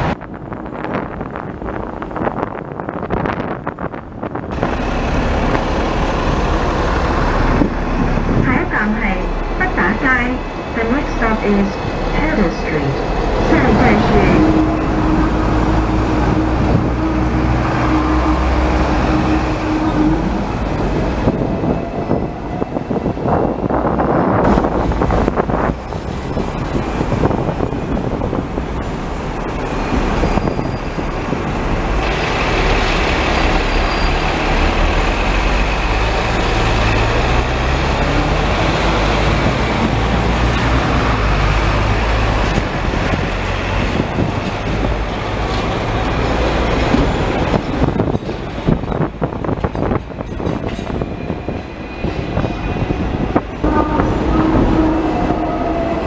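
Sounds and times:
tram wheels rumbling: 0:00.0 - 0:56.0.

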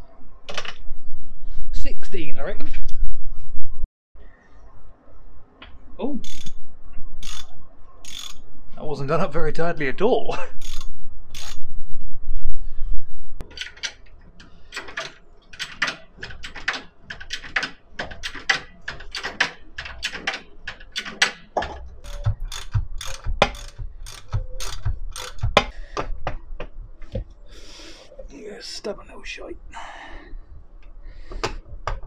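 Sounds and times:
socket ratchet clicking: 0:06.2 - 0:06.6, 0:07.2 - 0:08.4, 0:10.6 - 0:11.6, 0:13.4 - 0:25.7.

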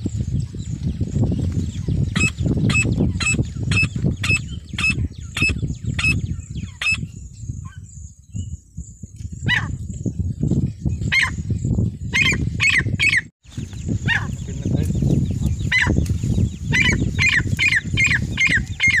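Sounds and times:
francolin calling: 0:15.5 - 0:19.0.

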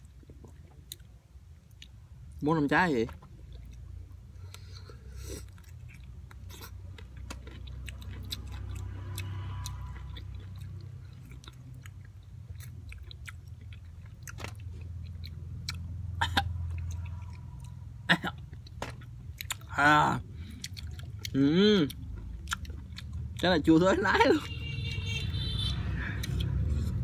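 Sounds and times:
person chewing fruit: 0:00.0 - 0:02.4, 0:03.1 - 0:24.0, 0:25.9 - 0:27.0
person vocalizing: 0:21.3 - 0:22.0
wet mouth clicks and smacks: 0:26.2 - 0:26.7.

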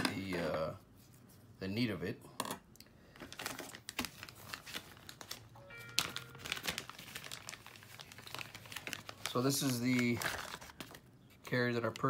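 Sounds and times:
plastic bag crinkling: 0:03.2 - 0:11.1.

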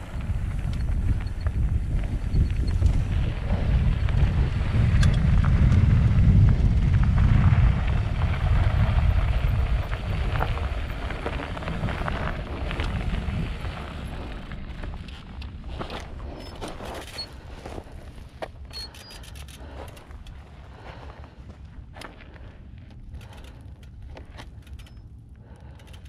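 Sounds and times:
wind buffeting microphone: 0:00.0 - 0:18.5
bike clicks and rattles: 0:00.0 - 0:20.5, 0:21.5 - 0:26.0
bike tyre rumble on dirt: 0:00.0 - 0:26.0.

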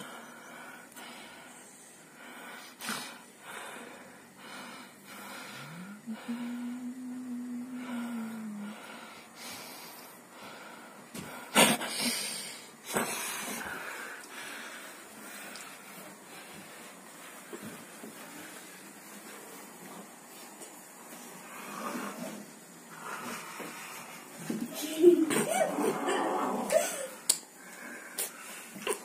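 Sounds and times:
kitten low growl: 0:25.2 - 0:27.2.

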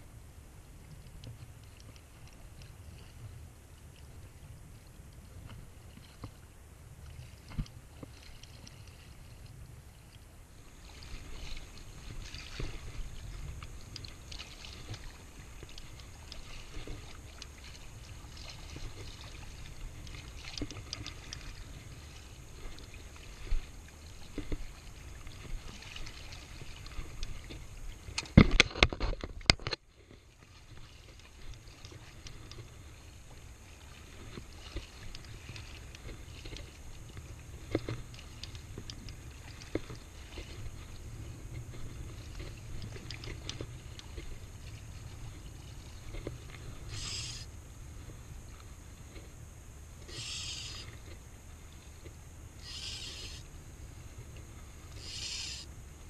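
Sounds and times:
shallow water sloshing: 0:00.8 - 0:56.0
fishing rod and reel clicks: 0:13.4 - 0:21.6, 0:34.4 - 0:40.7, 0:42.3 - 0:44.3, 0:46.9 - 0:47.5, 0:50.0 - 0:51.1, 0:52.0 - 0:53.5, 0:54.9 - 0:55.7.

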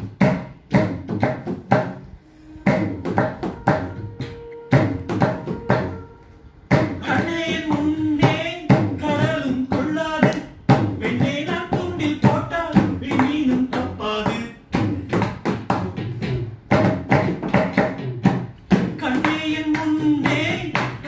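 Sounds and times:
hand drumming on plastic: 0:00.0 - 0:06.1, 0:06.7 - 0:21.0
person singing: 0:06.8 - 0:15.1, 0:19.0 - 0:21.0.

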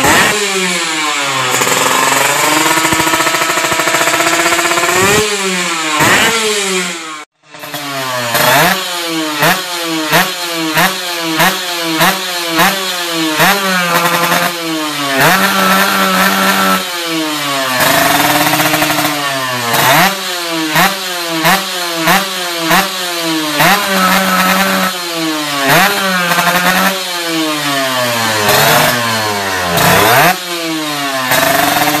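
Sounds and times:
another motorcycle revving: 0:00.0 - 0:32.0
two-stroke motorcycle revving: 0:00.0 - 0:32.0.

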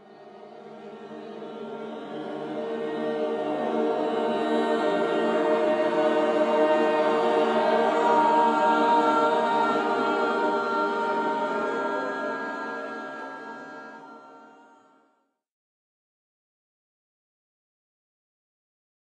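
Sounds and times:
group singing a cappella: 0:00.0 - 0:15.0.

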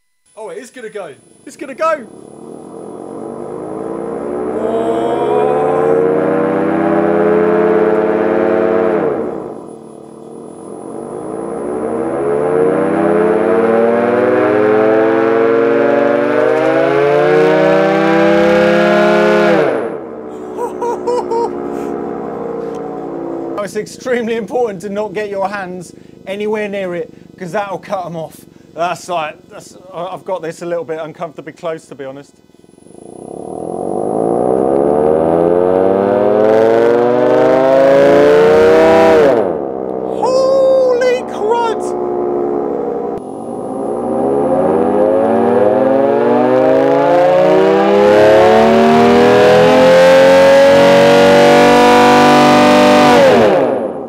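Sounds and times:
air raid siren two-note wail: 0:02.0 - 0:20.6, 0:21.2 - 0:24.2, 0:32.8 - 0:54.0.

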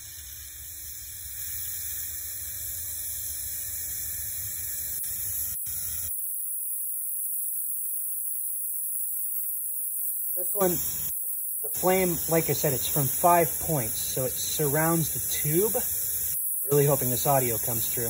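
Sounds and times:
torch flame hissing: 0:07.2 - 0:18.0.

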